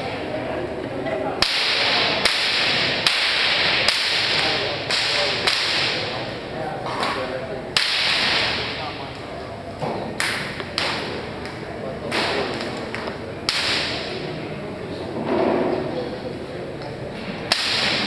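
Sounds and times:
weapons hitting wooden target: 1.4 - 6.2, 7.8 - 8.8, 12.1 - 14.2, 17.5 - 18.0.

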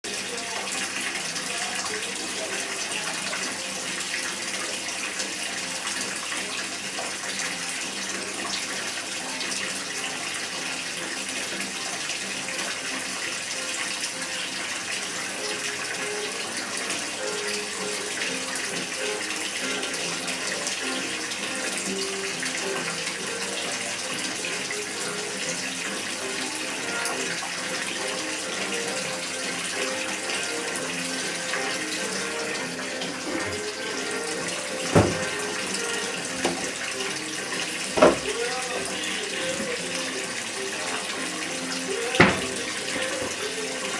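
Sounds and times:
tap running into bathtub: 0.1 - 43.9.

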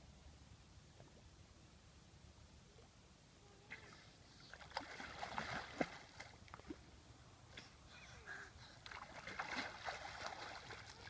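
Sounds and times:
water splashing from wading: 3.7 - 7.0, 8.8 - 11.0.

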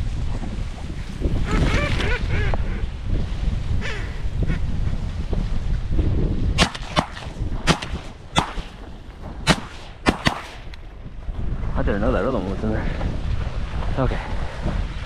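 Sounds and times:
wind rumble on microphone: 0.0 - 15.0
shotguns firing: 6.6 - 10.8.

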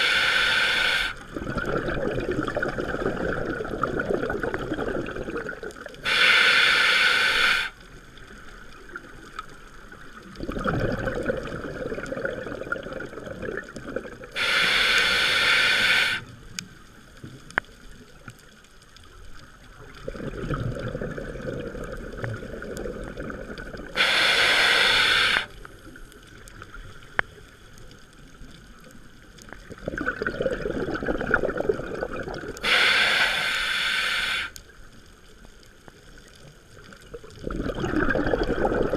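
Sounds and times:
regulator inhale hiss: 0.0 - 1.3, 6.0 - 7.9, 14.4 - 16.4, 24.0 - 25.7, 32.6 - 34.7
exhale bubbles gurgling: 0.0 - 16.6, 19.4 - 27.2, 28.4 - 35.1, 36.2 - 38.9.

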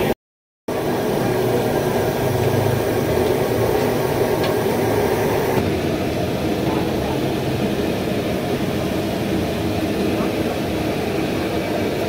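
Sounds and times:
gas burner roaring: 0.7 - 12.0.

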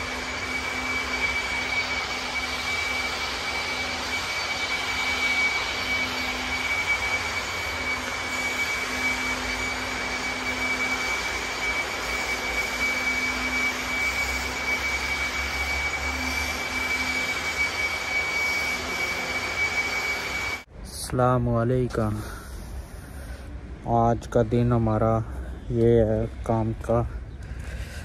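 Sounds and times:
floor grinders sanding: 0.0 - 20.7.

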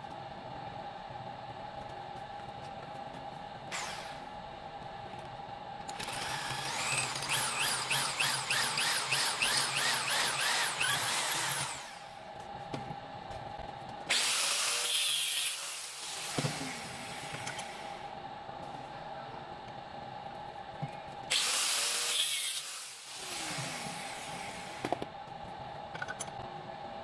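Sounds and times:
loud hiss: 14.1 - 17.9.

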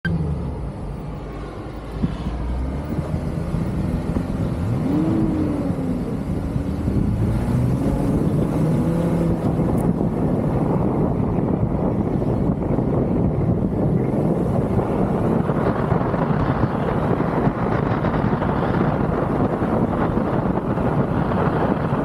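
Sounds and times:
off-road engines revving: 0.1 - 22.0.

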